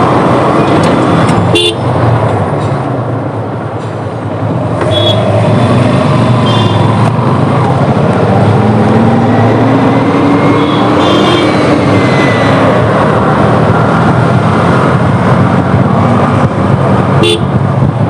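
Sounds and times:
motorcycle engine and road noise: 0:00.0 - 0:18.0
engine note rising: 0:05.2 - 0:16.4.

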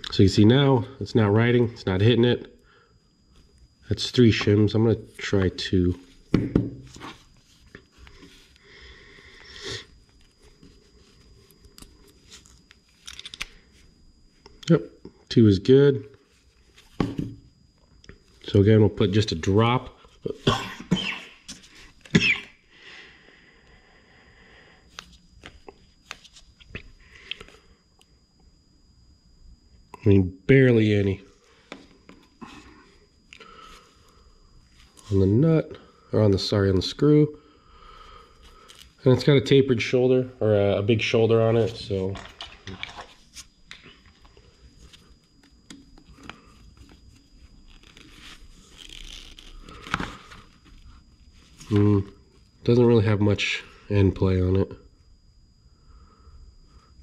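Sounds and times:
plastic bottle handling noises: 0:42.1 - 0:44.2.

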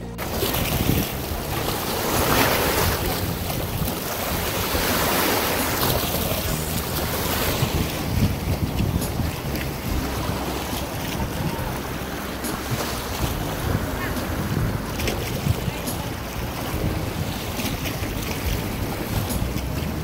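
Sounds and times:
wind blowing across microphone: 0:00.0 - 0:20.0.

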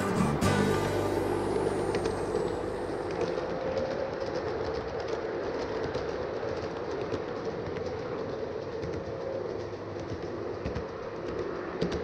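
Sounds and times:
model train rolling hum: 0:00.0 - 0:06.8
wheels clicking over rail joints: 0:00.0 - 0:12.0.

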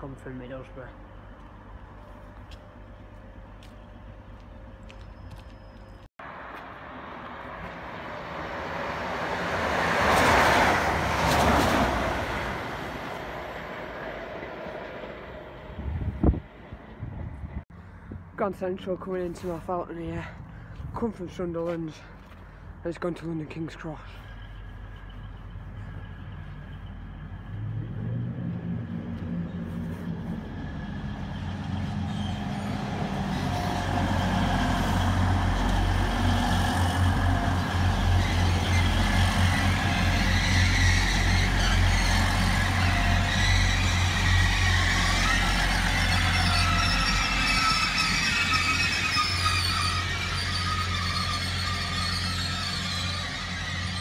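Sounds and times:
diesel train engine hum: 0:00.0 - 0:54.0
train wheel noise: 0:30.0 - 0:54.0
squealing train brakes: 0:31.8 - 0:33.7, 0:38.0 - 0:54.0.

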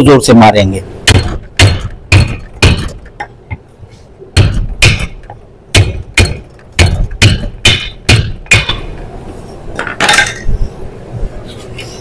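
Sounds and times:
hammer striking wooden block: 0:01.1 - 0:03.3, 0:04.4 - 0:08.8.

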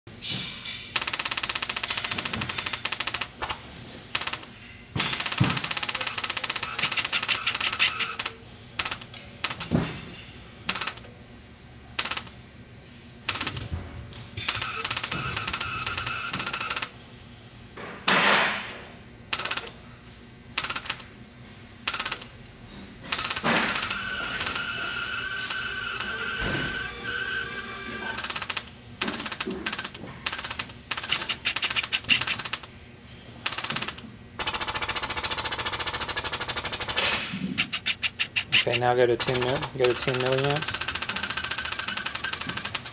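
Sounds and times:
rattling bursts of air: 0:04.1 - 0:09.8, 0:23.1 - 0:32.7, 0:33.3 - 0:42.9
pneumatic air pulses: 0:23.1 - 0:28.5.

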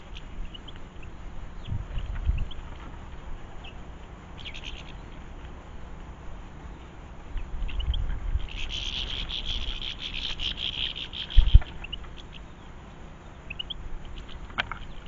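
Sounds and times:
goldfinches twittering: 0:03.4 - 0:05.4, 0:06.6 - 0:15.0.

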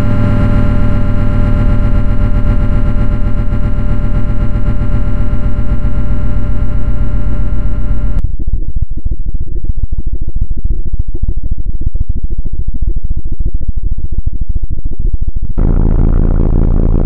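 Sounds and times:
harsh noise music: 0:00.0 - 0:08.2, 0:15.6 - 0:17.0.

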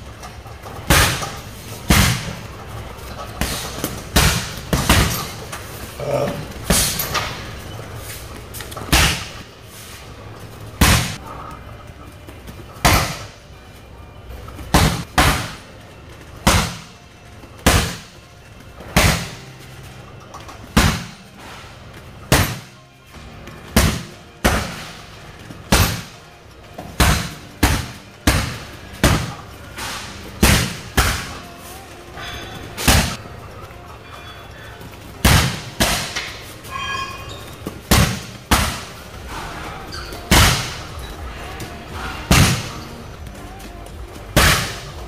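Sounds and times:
kicks thudding on heavy bag: 0:00.8 - 0:02.4, 0:03.3 - 0:05.4, 0:08.9 - 0:09.4, 0:10.8 - 0:11.2, 0:12.8 - 0:13.4, 0:14.7 - 0:15.7, 0:16.4 - 0:16.9, 0:17.6 - 0:18.2, 0:18.8 - 0:19.4, 0:20.7 - 0:21.2, 0:22.3 - 0:22.7, 0:23.7 - 0:25.1, 0:25.7 - 0:26.2, 0:26.8 - 0:29.4, 0:30.0 - 0:31.3, 0:35.2 - 0:36.3, 0:37.7 - 0:39.0, 0:40.2 - 0:40.8, 0:42.2 - 0:42.8, 0:44.3 - 0:45.0.

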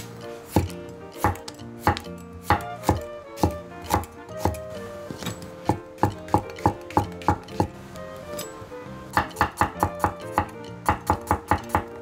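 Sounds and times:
knife chopping on wooden board: 0:00.5 - 0:04.6, 0:05.7 - 0:07.7, 0:09.2 - 0:11.9.

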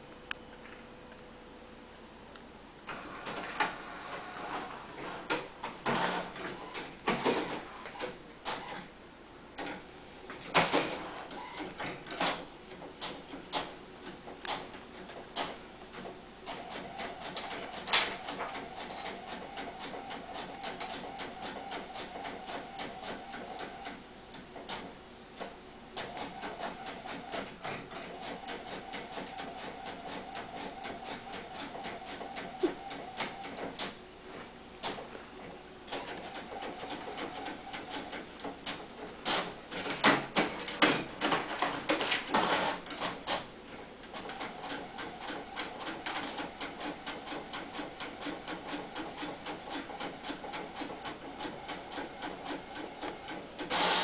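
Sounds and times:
printer clicks and clunks: 0:02.9 - 0:08.9, 0:09.6 - 0:34.0, 0:35.9 - 0:54.0
printer motor whir with ticking: 0:13.0 - 0:34.0, 0:35.9 - 0:40.0, 0:44.0 - 0:54.0.

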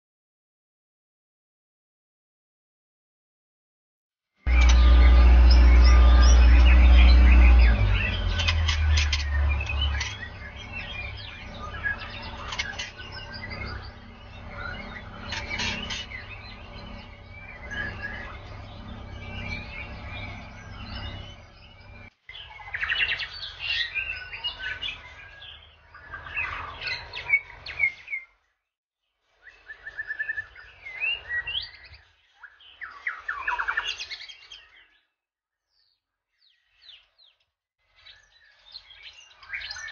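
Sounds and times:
low hum: 0:04.5 - 0:22.1
bird singing whistles and chirps: 0:04.5 - 0:28.3, 0:29.4 - 0:35.0, 0:38.0 - 0:39.9.

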